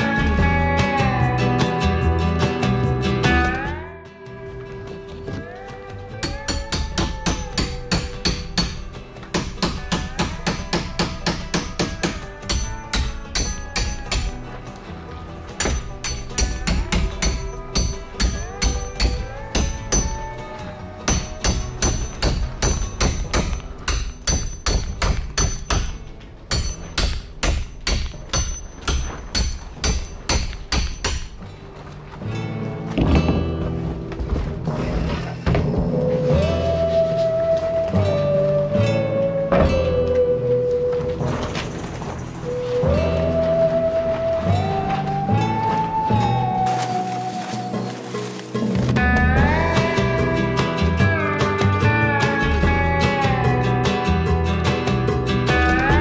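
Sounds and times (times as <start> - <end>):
background music with held notes: 0.0 - 56.0
hammer striking steel bolts: 6.2 - 14.5, 15.6 - 20.4, 21.1 - 31.4.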